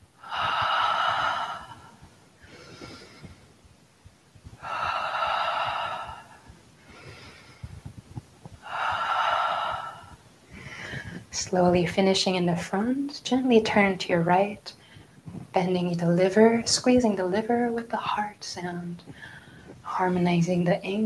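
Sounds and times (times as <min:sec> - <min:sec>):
soft in-breaths: 0:00.0 - 0:11.4, 0:14.7 - 0:15.6, 0:19.0 - 0:20.0.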